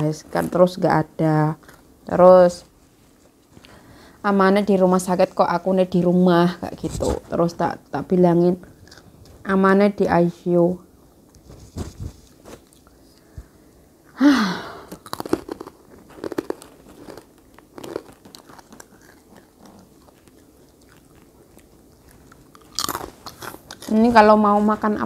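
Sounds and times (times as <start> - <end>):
person chewing crunchy snack: 8.8 - 9.2, 14.8 - 24.0.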